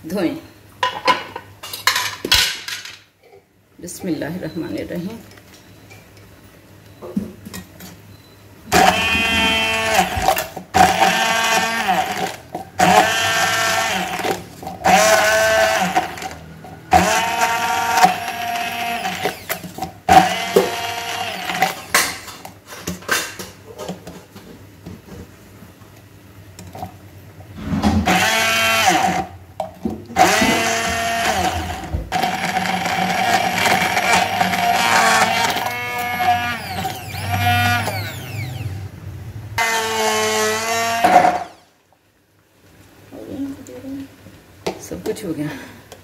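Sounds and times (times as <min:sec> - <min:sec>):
hand blender whirring: 0:08.7 - 0:22.2, 0:28.0 - 0:29.3, 0:30.2 - 0:38.9, 0:39.6 - 0:41.7.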